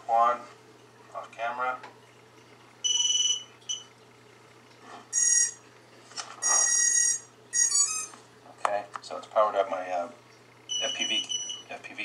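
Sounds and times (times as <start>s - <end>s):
electronic beeps through phone speaker: 10.7s - 11.7s.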